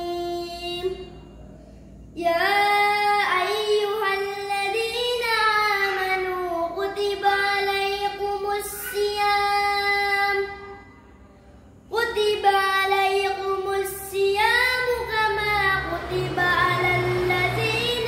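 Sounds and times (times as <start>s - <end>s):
child singing unaccompanied: 0.0s - 1.3s, 2.2s - 11.2s, 11.9s - 18.0s.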